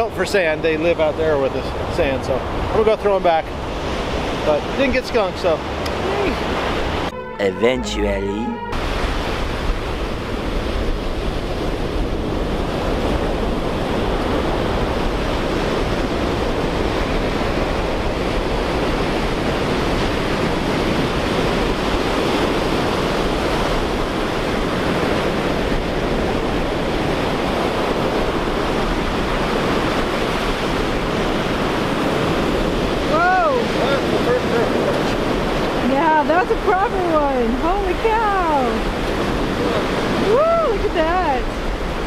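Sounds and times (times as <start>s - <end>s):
ocean surf breaking: 0.0s - 42.0s
wind rumbling on microphone: 8.7s - 42.0s.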